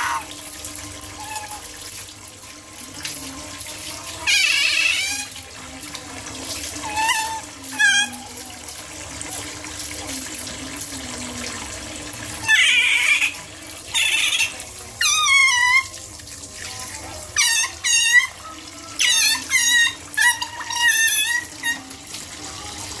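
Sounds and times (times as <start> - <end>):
tap water splashing into basin: 0.0 - 23.0
otter squeaking chirps: 4.3 - 5.4, 12.4 - 16.0, 17.3 - 22.0.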